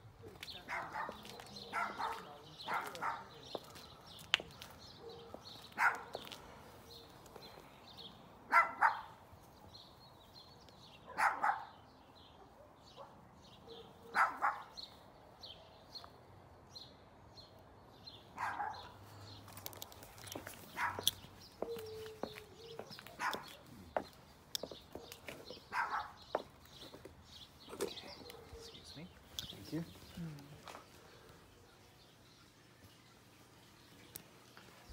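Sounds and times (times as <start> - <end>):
bird chirping: 0.2 - 34.9
dog barking: 0.7 - 4.1, 5.0 - 6.3, 8.5 - 9.2, 11.1 - 11.8, 12.4 - 14.8, 18.4 - 19.0, 20.7 - 21.1, 23.1 - 23.6, 25.7 - 26.2, 28.1 - 28.8.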